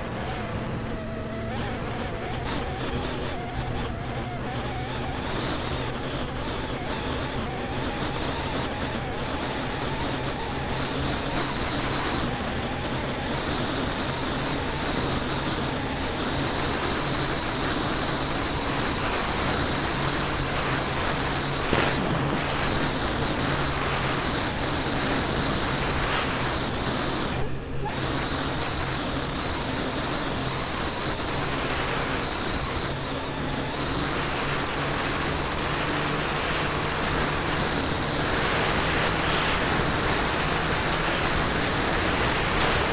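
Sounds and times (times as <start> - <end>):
snowmobile engine drone: 0.0 - 42.9.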